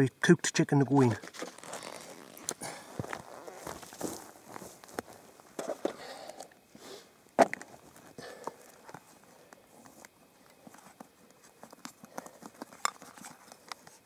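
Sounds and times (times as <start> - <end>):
cooking gear clicks and rustles: 7.5 - 14.0.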